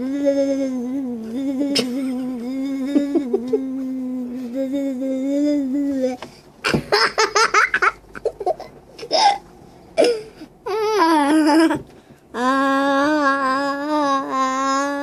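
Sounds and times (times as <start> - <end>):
boy vocal sounds: 0.0 - 6.2, 10.0 - 15.0
person humming long note: 0.0 - 6.2
young boy giggling: 1.5 - 4.0, 6.7 - 9.3.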